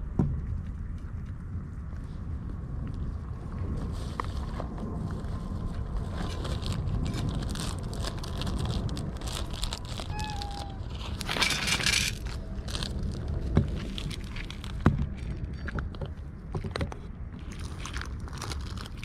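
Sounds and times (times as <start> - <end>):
wind rumble on microphone: 0.0 - 19.0
cats lapping and chewing: 3.8 - 16.8, 17.4 - 19.0.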